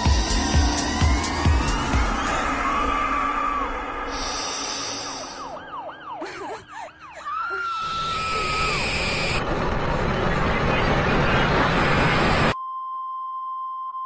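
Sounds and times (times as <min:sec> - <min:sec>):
falling siren-like swoops: 0:00.3 - 0:09.5
electronic high hiss: 0:04.1 - 0:05.6.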